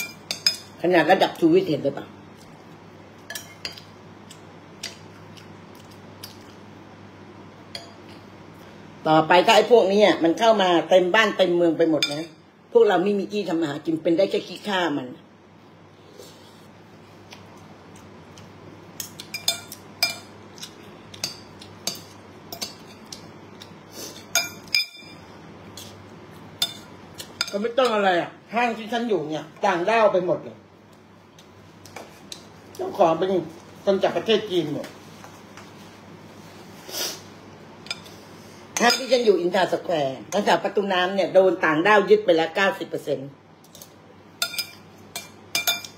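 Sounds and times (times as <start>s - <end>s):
cutlery clinking on ceramic bowl: 24.3s - 25.2s, 44.4s - 45.9s.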